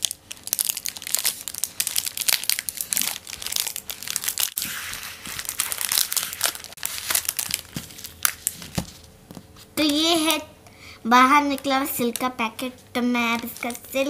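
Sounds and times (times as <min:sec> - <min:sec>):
plastic wrapper crinkling: 0:00.0 - 0:09.1, 0:13.2 - 0:14.0.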